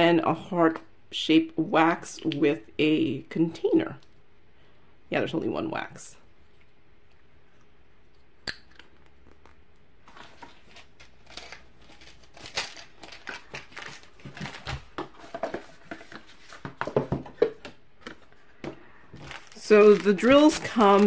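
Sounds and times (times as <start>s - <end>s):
plastic bags crinkling: 10.0s - 18.5s, 19.1s - 21.0s
cardboard and paper rustling: 10.0s - 21.0s.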